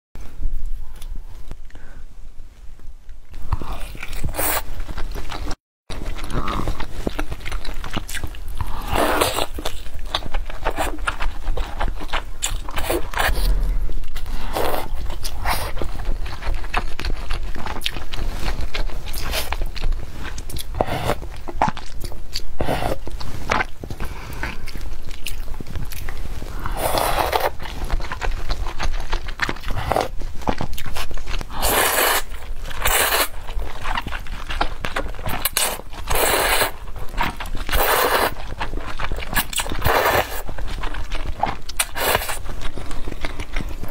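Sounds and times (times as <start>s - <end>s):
wet chewing and smacking: 3.3s - 43.9s
slurping noodles: 8.6s - 9.6s, 26.5s - 27.8s, 31.5s - 33.4s, 35.4s - 36.8s, 37.6s - 38.4s, 39.3s - 40.5s, 41.8s - 42.4s.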